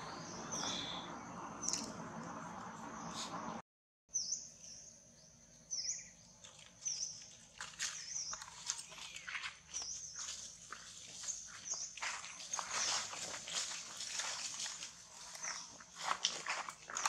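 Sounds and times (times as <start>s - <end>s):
high bird chirps: 0.0s - 2.0s
dry leaves crackling: 6.4s - 17.0s.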